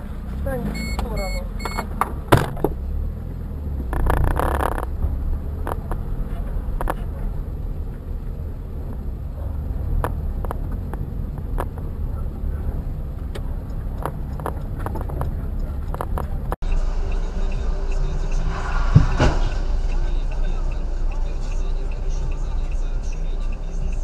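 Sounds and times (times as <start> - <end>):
car engine and road noise: 0.0 - 24.0
sharp clicks and knocks: 3.8 - 6.1, 10.0 - 11.9, 13.2 - 16.6.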